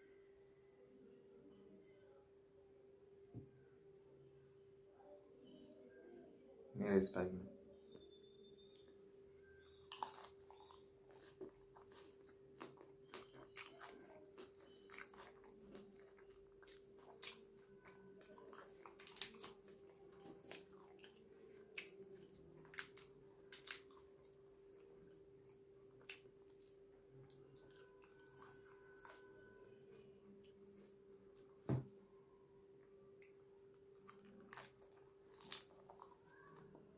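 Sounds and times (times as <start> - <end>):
chewing with crunches: 9.6 - 31.0, 33.9 - 36.9.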